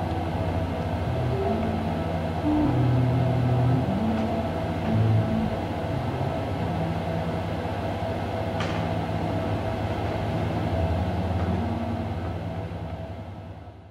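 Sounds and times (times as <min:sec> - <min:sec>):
held higher tone: 0:00.0 - 0:07.5, 0:10.7 - 0:12.7
low electronic hum: 0:00.0 - 0:13.9.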